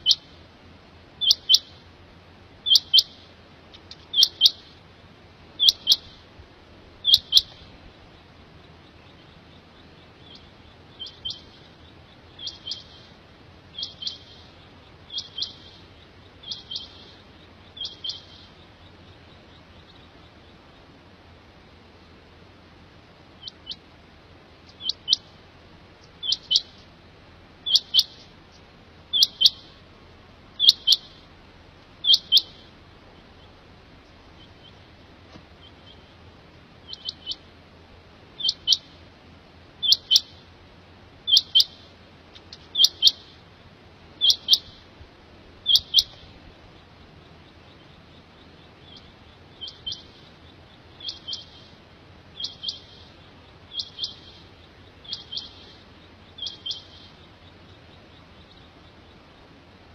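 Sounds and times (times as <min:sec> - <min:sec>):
quail calling: 0:00.0 - 0:00.3, 0:01.2 - 0:01.8, 0:02.6 - 0:03.2, 0:03.8 - 0:04.8, 0:05.6 - 0:06.2, 0:07.0 - 0:20.9, 0:23.4 - 0:23.9, 0:24.7 - 0:25.4, 0:26.0 - 0:26.8, 0:27.6 - 0:29.8, 0:30.6 - 0:31.3, 0:32.0 - 0:35.0, 0:36.8 - 0:37.5, 0:38.4 - 0:39.0, 0:39.8 - 0:40.5, 0:41.3 - 0:43.4, 0:44.2 - 0:44.8, 0:45.6 - 0:59.6.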